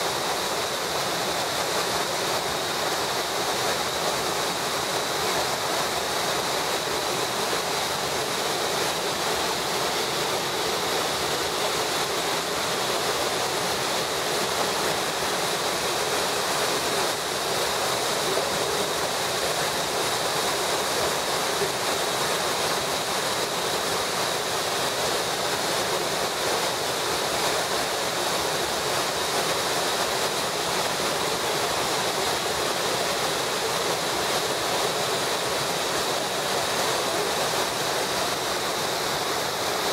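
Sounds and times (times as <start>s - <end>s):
waterfall rushing: 0.0s - 39.9s.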